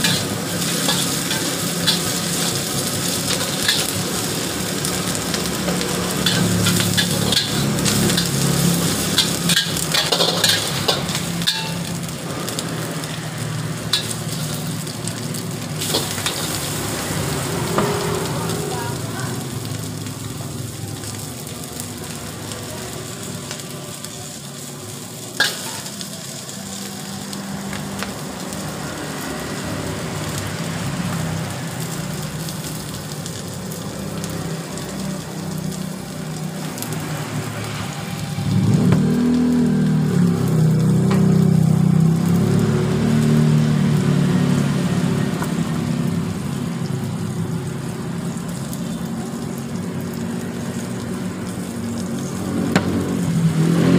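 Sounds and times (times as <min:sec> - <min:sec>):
metal ladle scraping a pan: 0:00.0 - 0:02.6, 0:06.2 - 0:12.1
food sizzling in a wok: 0:00.0 - 0:53.9.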